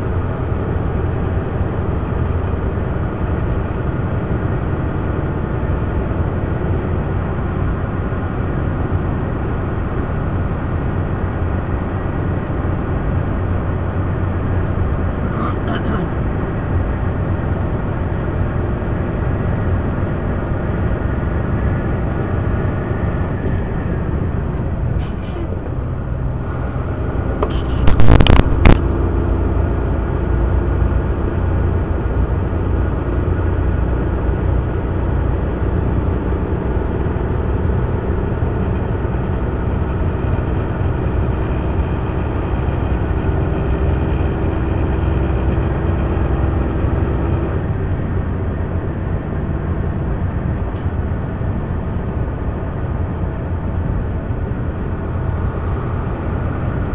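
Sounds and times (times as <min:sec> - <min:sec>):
truck engine and road noise: 0:00.0 - 0:56.9.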